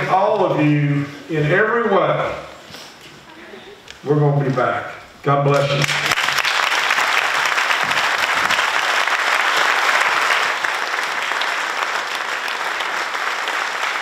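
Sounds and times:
audience applauding: 5.5s - 14.0s.

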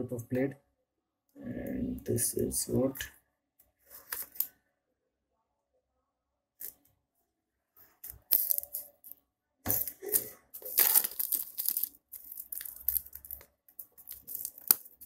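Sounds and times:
plastic wrap crinkling and tearing: 8.0s - 9.1s, 9.8s - 15.0s.

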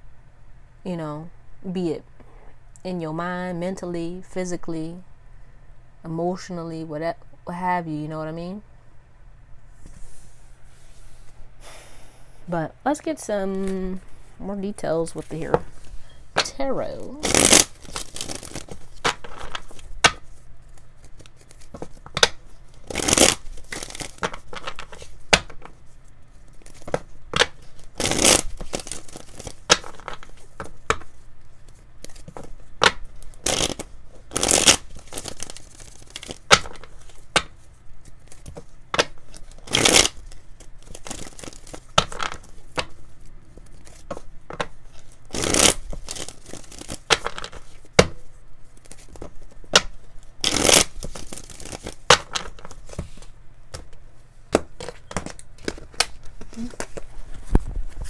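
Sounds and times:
cards being shuffled: 15.2s - 58.0s.

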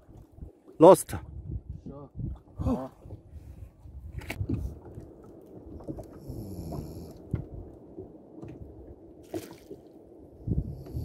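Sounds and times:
microphone handling rumble: 1.2s - 7.8s, 10.4s - 11.0s.

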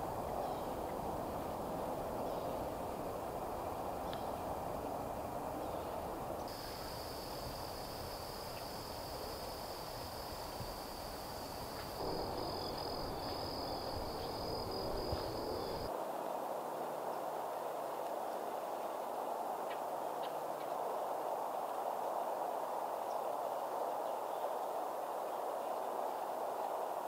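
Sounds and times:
outdoor background hiss and rumble: 0.0s - 27.0s
high-pitched insect trill: 6.5s - 15.9s.

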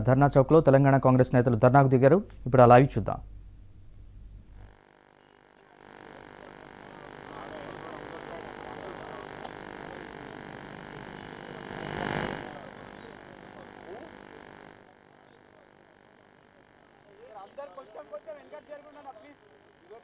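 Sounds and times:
faint indistinct voices: 5.5s - 20.0s.

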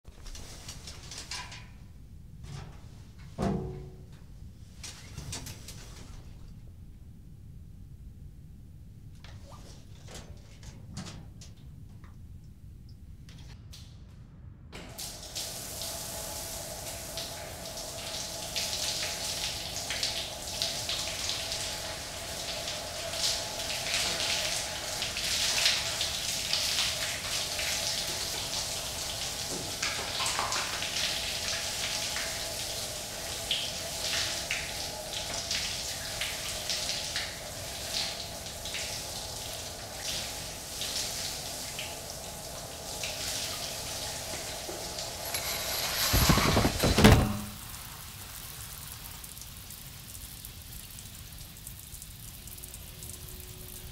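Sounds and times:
shower spray splashing into bathtub: 42.7s - 49.4s.

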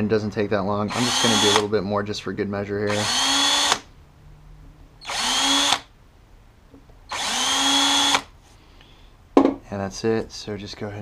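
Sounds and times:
power drill spinning: 0.9s - 1.7s, 2.9s - 3.9s, 5.0s - 5.9s, 7.1s - 8.3s.

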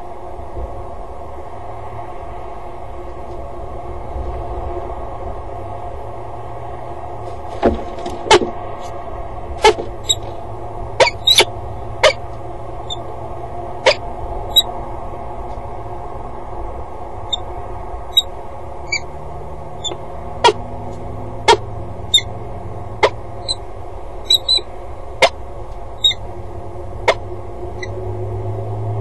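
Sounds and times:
low background hum: 0.0s - 29.0s
falcon sharp calls: 11.0s - 12.2s, 13.8s - 14.7s, 19.8s - 20.6s, 21.5s - 22.3s, 24.2s - 25.4s, 27.0s - 27.2s.

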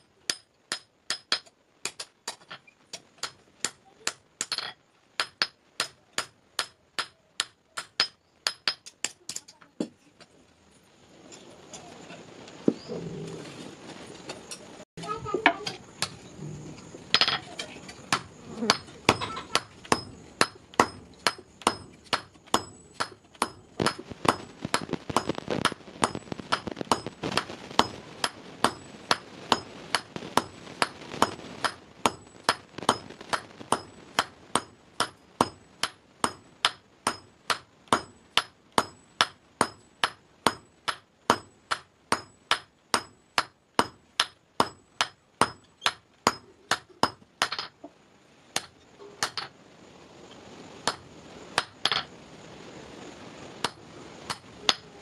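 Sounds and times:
hammer striking iron on anvil: 3.2s - 9.2s, 18.1s - 25.3s, 26.0s - 47.7s.

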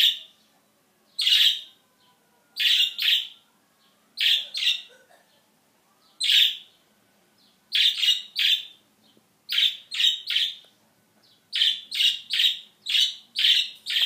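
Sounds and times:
budgerigar chirping: 1.2s - 1.7s, 2.6s - 3.4s, 4.2s - 5.0s, 6.2s - 6.8s, 7.7s - 8.8s, 9.5s - 10.6s, 11.5s - 14.0s.

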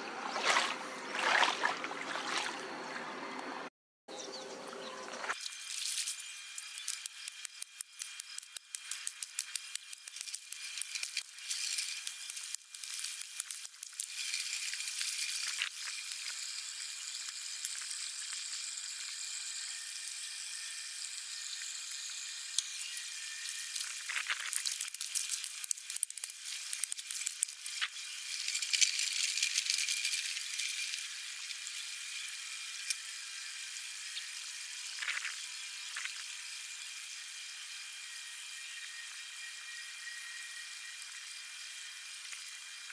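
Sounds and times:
water trickling through channel: 0.1s - 3.1s.

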